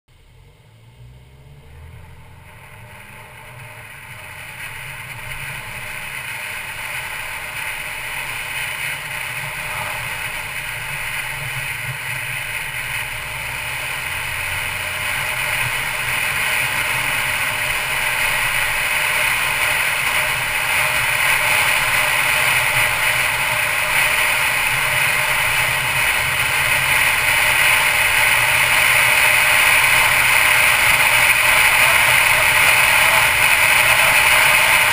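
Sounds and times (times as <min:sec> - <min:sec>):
car road noise rush: 0:00.1 - 0:34.9.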